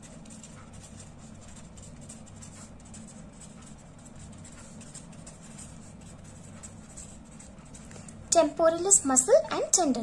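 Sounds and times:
pen writing on paper: 0.0 - 7.9.

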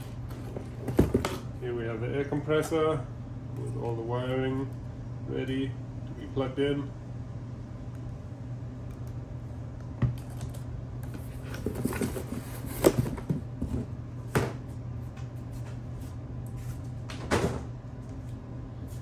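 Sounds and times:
steady low hum: 0.0 - 19.0
plastic and cardboard rustling: 10.2 - 14.0.

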